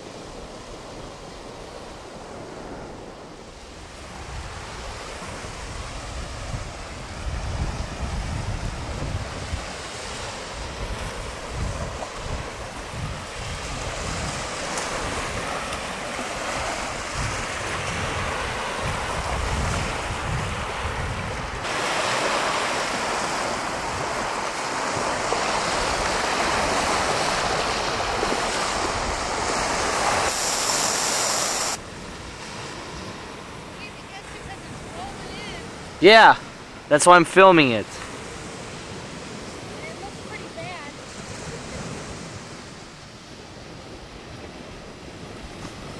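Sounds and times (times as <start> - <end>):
wind buffeting microphone: 0.0 - 36.9
waves washing onto sand: 0.0 - 45.9
brief high hiss: 30.2 - 31.8.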